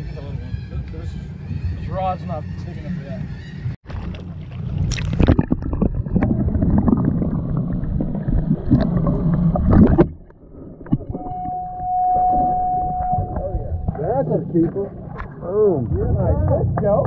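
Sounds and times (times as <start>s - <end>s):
water rushing and gurgling underwater: 3.8s - 17.0s
steady high tone: 11.2s - 14.2s.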